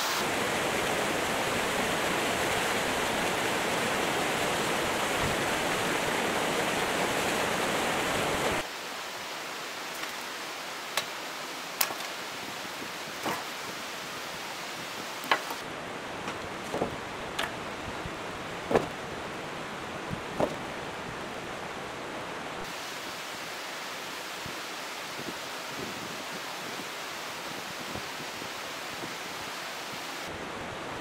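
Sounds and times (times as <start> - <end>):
stream water rushing: 0.0 - 31.0
sharp wooden knocks and cracks: 10.0 - 10.2, 11.8 - 12.2, 13.2 - 13.6, 15.2 - 15.6, 16.2 - 17.6, 18.7 - 19.0, 20.3 - 20.6.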